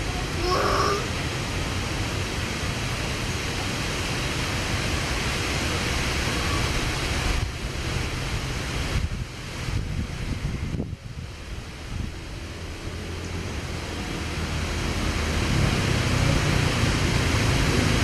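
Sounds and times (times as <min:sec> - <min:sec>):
wind on microphone: 0:07.1 - 0:12.7.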